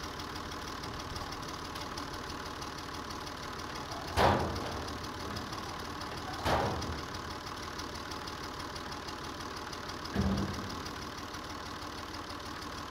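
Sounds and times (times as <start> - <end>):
tractor engine idling: 0.0 - 12.9
heavy hopper clunks: 3.8 - 7.4, 10.0 - 11.0.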